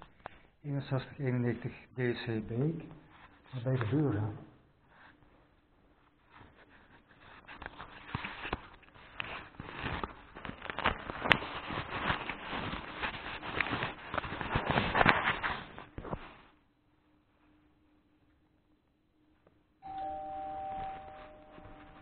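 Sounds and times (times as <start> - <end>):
clothing rustling: 4.8 - 18.0, 19.8 - 22.0
footsteps: 19.8 - 22.0.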